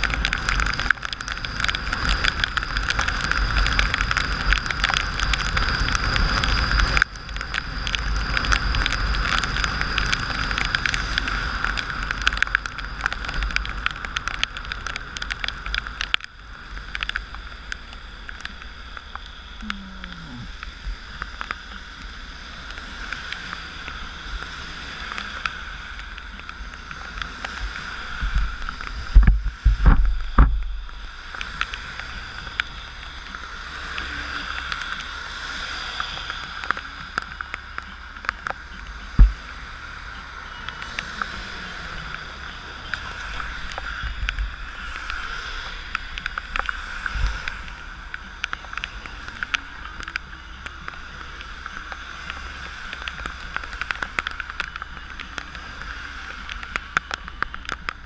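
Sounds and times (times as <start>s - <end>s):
heavy wind rumble: 0.0s - 58.0s
rushing rain spray: 0.0s - 58.0s
low wind thumps: 39.2s - 39.7s.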